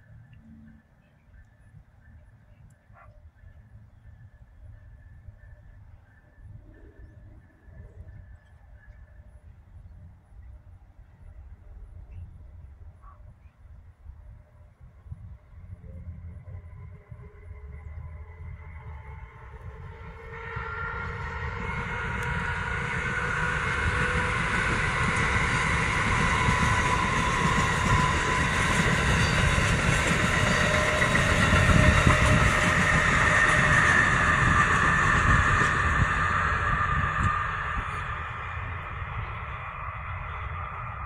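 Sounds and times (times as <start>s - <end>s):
electric locomotive high whine: 0.0s - 41.0s
train wheels rumbling on rail: 15.7s - 41.0s.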